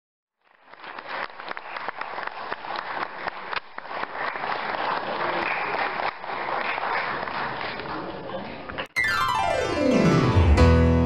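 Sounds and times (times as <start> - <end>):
audience applauding: 0.4 - 8.9.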